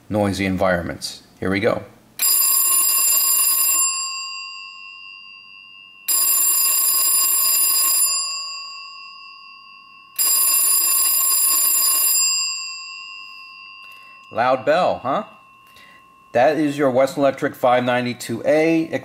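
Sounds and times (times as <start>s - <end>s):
telephone bell ringing: 2.2s - 17.4s.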